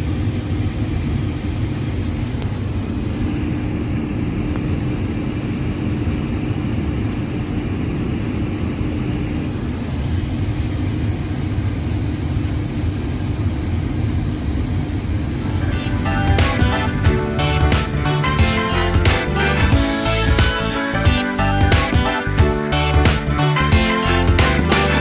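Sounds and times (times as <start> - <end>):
machinery hum and rush: 0.0 - 25.0.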